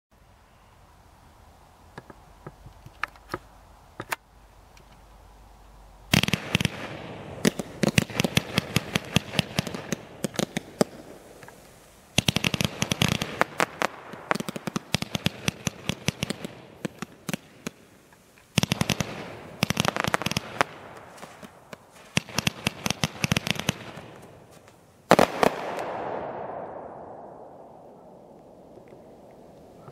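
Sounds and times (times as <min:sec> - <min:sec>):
fireworks launching and bursting: 0:06.1 - 0:29.8.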